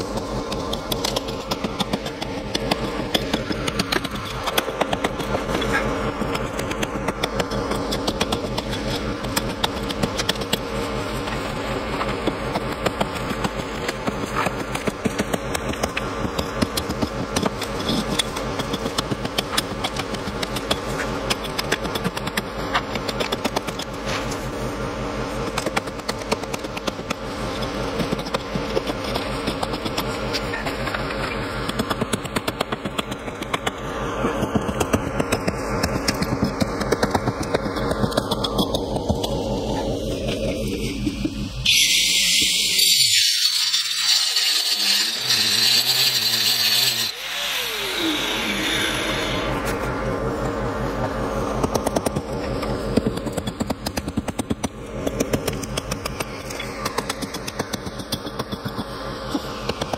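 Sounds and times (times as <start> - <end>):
engine-like drone: 0.0 - 59.9
whine falling in pitch: 38.8 - 43.4, 47.1 - 52.7.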